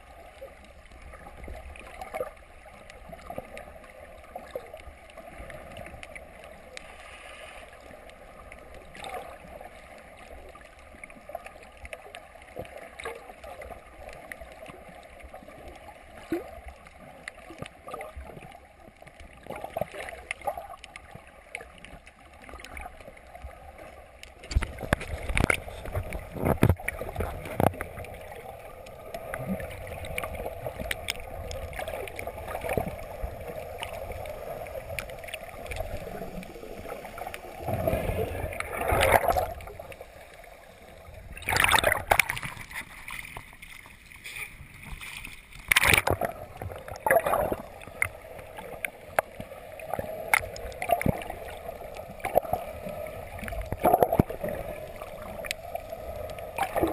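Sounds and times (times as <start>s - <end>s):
underwater watery hiss: 6.8s - 7.9s
clicks and crackles: 16.8s - 40.5s, 41.4s - 56.9s.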